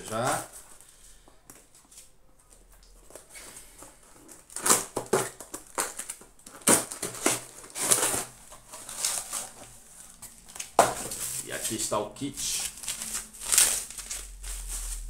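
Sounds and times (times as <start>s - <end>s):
packaging crumpling and rustling: 2.0s - 15.0s
package being torn open: 4.3s - 9.7s, 12.5s - 14.3s.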